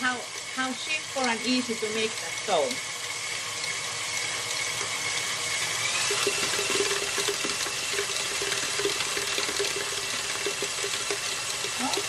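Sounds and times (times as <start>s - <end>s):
stand mixer motor whirring: 0.0s - 12.0s
beater knocking in batter: 5.9s - 12.0s.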